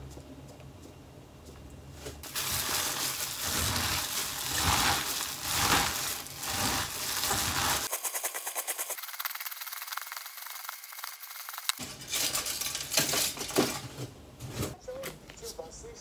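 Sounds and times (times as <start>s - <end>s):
gloved hand squelching minced meat: 2.2s - 7.9s.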